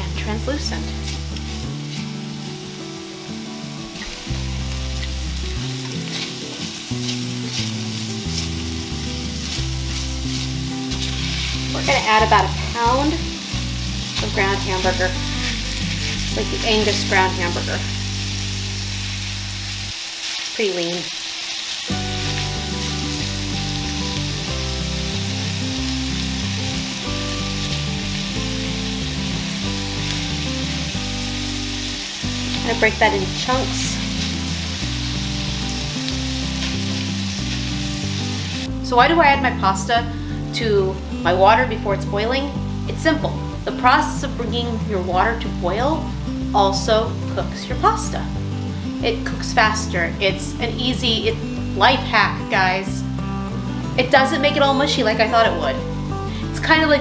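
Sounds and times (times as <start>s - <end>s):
background music with bass: 0.0s - 20.0s, 21.9s - 57.0s
onion and garlic sizzling in oil: 0.0s - 57.0s
spatula scraping skillet: 5.8s - 12.7s, 13.5s - 17.6s.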